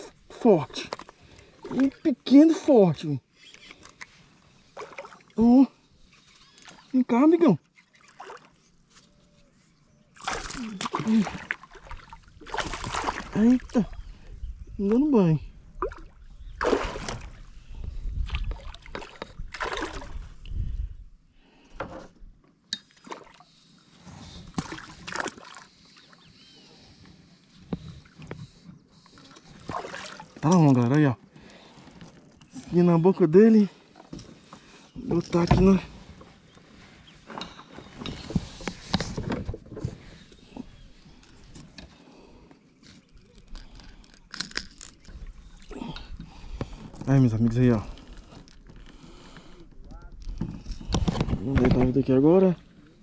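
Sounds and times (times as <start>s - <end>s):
water sloshing against kayak hull: 10.1s - 15.0s, 15.6s - 20.7s, 27.6s - 30.5s.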